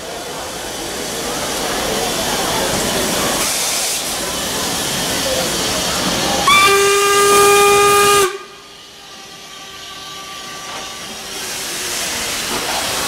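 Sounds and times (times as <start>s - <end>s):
steam hissing: 0.0s - 13.0s
steam whistle blast: 6.4s - 8.6s.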